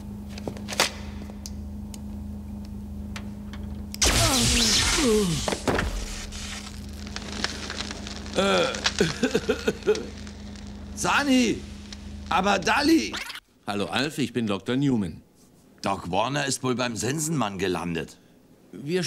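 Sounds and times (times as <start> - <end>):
steady electrical hum: 0.0 - 19.0
crackling electric zap: 4.0 - 13.4.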